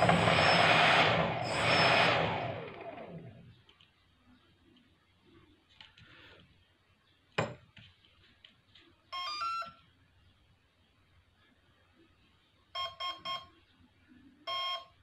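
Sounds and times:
electronic beep tones from motor: 9.2s - 9.8s, 12.8s - 13.5s, 14.5s - 15.0s.

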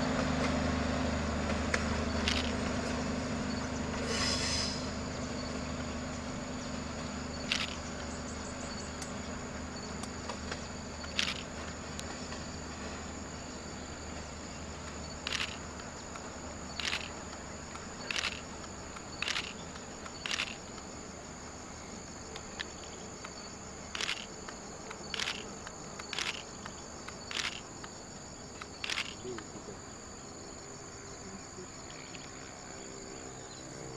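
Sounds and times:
insects droning: 0.0s - 33.9s
passenger train rumbling: 0.0s - 33.9s
camera shutter clicks: 2.2s - 2.5s, 7.5s - 7.8s, 11.1s - 11.5s, 15.2s - 15.6s, 16.8s - 17.2s, 18.1s - 18.5s, 19.2s - 19.6s, 20.2s - 20.6s, 23.9s - 24.3s, 25.1s - 25.5s, 26.1s - 26.7s, 27.3s - 27.6s, 28.8s - 29.2s.

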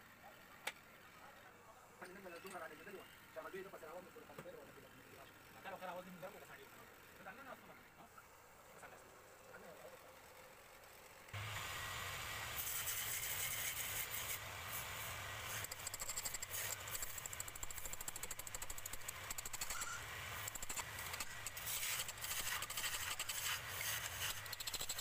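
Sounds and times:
turning tool scraping wood: 12.6s - 25.0s.

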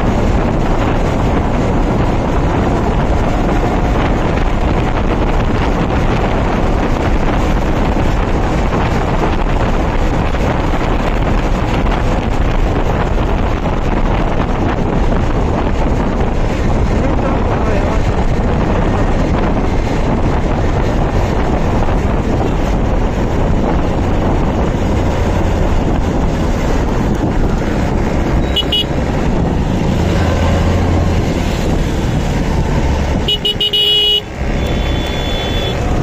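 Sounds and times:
wind and road noise: 0.0s - 36.0s
vehicle horn tooting: 28.4s - 28.9s, 33.3s - 35.8s.

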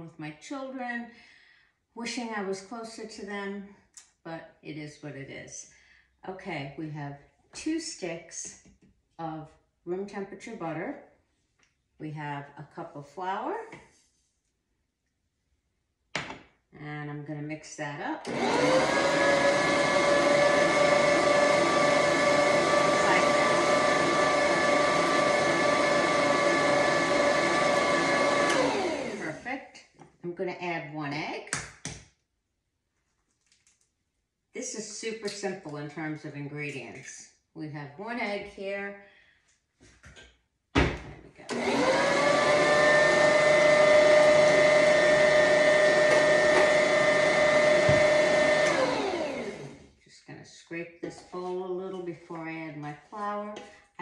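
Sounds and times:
stand mixer motor whining: 18.3s - 29.4s, 41.5s - 49.8s.

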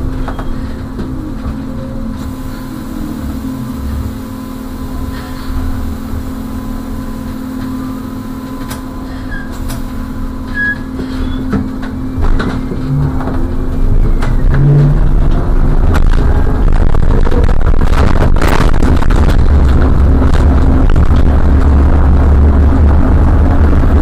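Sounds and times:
bus ride rumble: 0.0s - 24.0s
rattles and knocks: 11.5s - 21.7s.

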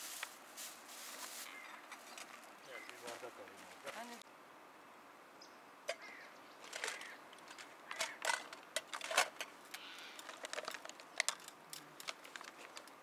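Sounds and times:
light clicks and clatters of handling: 6.6s - 13.0s.

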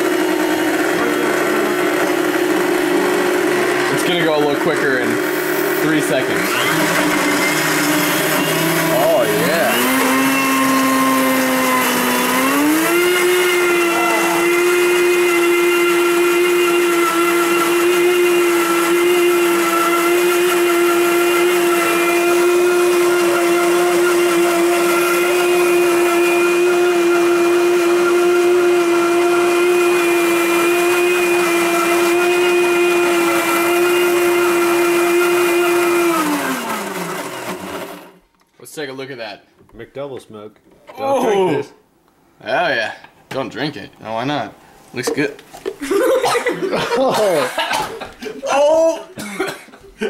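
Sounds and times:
blender motor whining: 0.0s - 38.2s.

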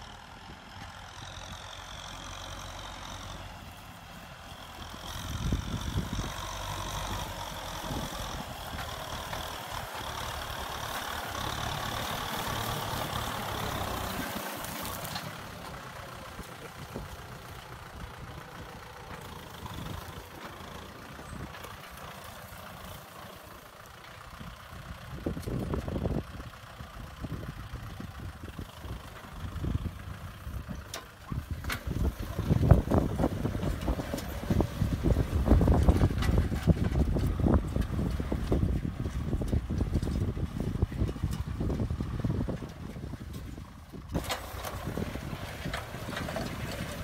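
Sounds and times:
tractor diesel engine running: 0.0s - 47.0s.

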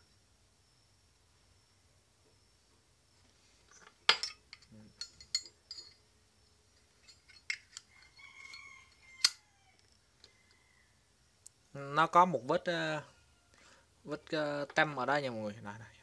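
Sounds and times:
lighter metal clicks and clinks: 8.9s - 9.4s.

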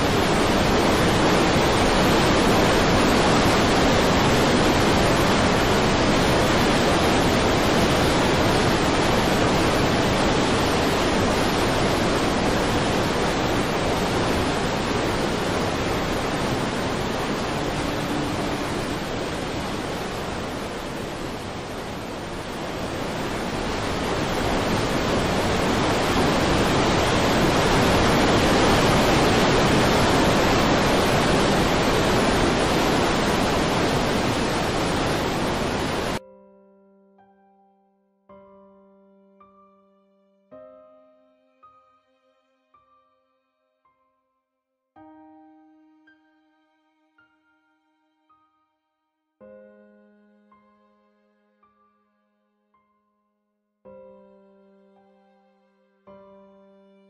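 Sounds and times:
waterfall rushing: 0.0s - 36.2s.

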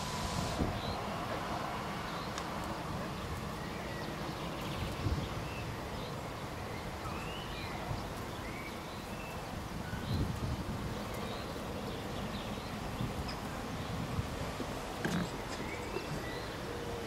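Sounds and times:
distant diesel locomotive rumble: 0.0s - 9.9s
birds chirping: 0.6s - 17.0s.

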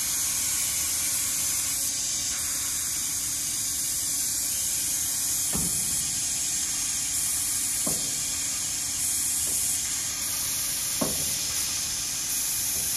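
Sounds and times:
steady hiss: 4.4s - 12.9s
dull knocks of lathe quill: 7.8s - 8.2s, 11.0s - 11.4s.

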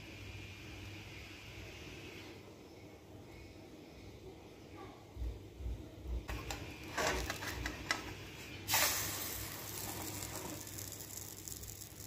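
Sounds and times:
pancake batter sizzling: 8.6s - 12.0s.

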